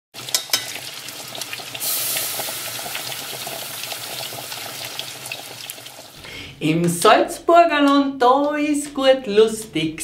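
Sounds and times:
water running from kitchen tap: 0.2s - 6.2s.

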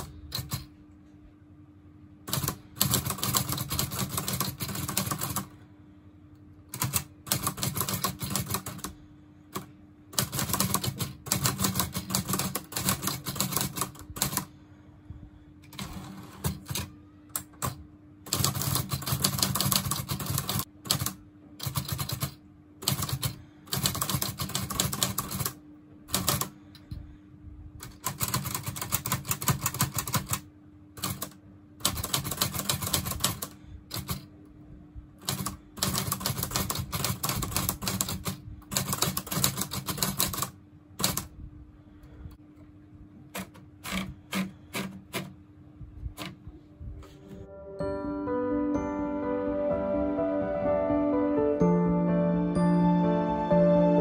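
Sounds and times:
manual typewriter typing: 0.0s - 0.7s, 2.3s - 5.5s, 6.7s - 14.5s, 15.7s - 26.6s, 27.8s - 34.3s, 35.2s - 41.3s, 43.3s - 45.4s.

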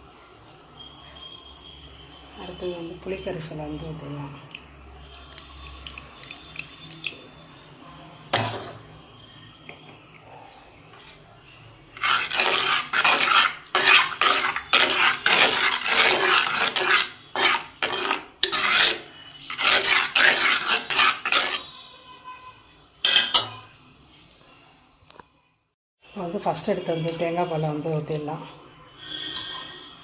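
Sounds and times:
metal spoon scraping clay pot: 12.0s - 21.8s, 23.0s - 23.6s, 29.2s - 29.9s.

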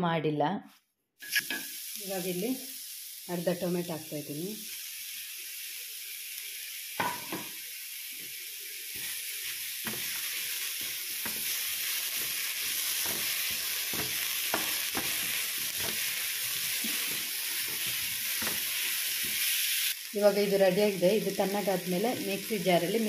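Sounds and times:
food sizzling in frying pan: 1.2s - 23.0s.

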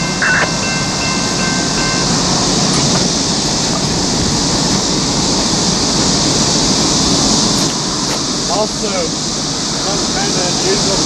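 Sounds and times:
crossing bell ringing: 0.0s - 7.0s
freight train rumble and hiss: 0.0s - 11.0s.

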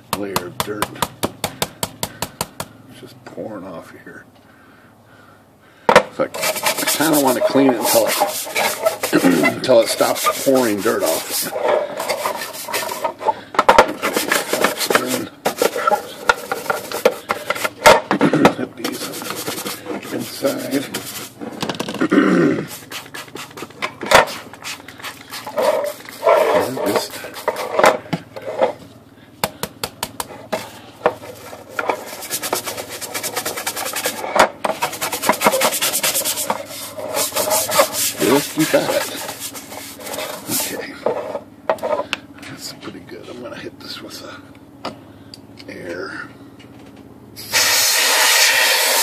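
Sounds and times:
brush scrubbing wet painted metal: 6.3s - 13.4s, 14.0s - 17.8s, 18.7s - 21.4s, 22.7s - 28.8s, 30.2s - 41.9s, 47.4s - 49.0s.

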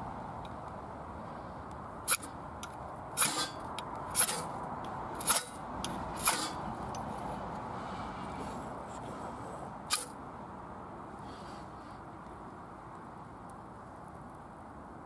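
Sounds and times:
knife scraping ferro rod: 2.1s - 2.4s, 3.2s - 4.6s, 5.2s - 6.7s, 9.9s - 10.1s.

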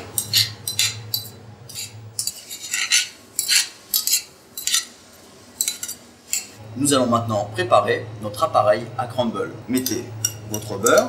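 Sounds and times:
utensil scraping a saucepan: 0.2s - 4.9s.

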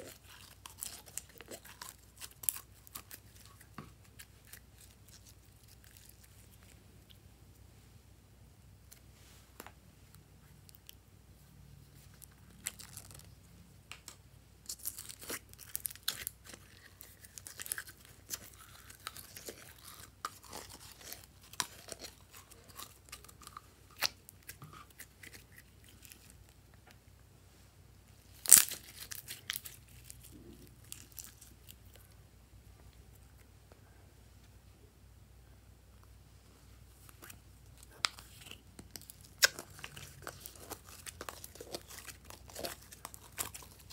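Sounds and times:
slime crinkling and crackling: 0.0s - 7.2s, 12.0s - 13.4s, 14.6s - 26.6s, 28.3s - 32.0s, 37.0s - 43.9s.

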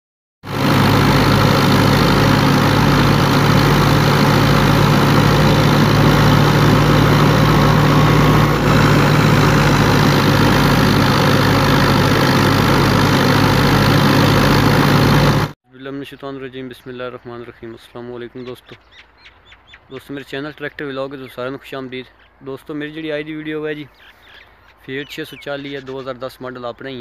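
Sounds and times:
tractor diesel engine running: 0.4s - 15.6s
thresher whirring: 0.5s - 15.6s.

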